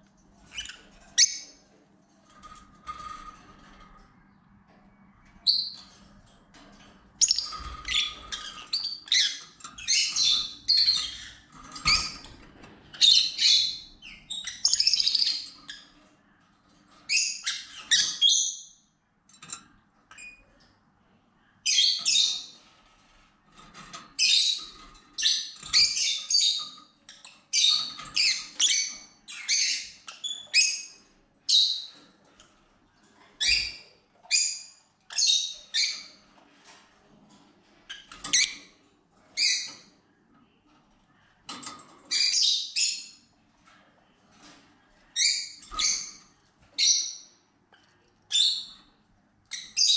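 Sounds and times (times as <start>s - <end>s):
lovebirds chirping and squawking: 0.4s - 1.7s, 2.3s - 6.2s, 6.8s - 18.8s, 21.6s - 23.1s, 24.1s - 32.2s, 33.1s - 36.7s, 37.7s - 40.0s, 41.6s - 43.3s, 44.4s - 47.5s, 48.3s - 49.9s.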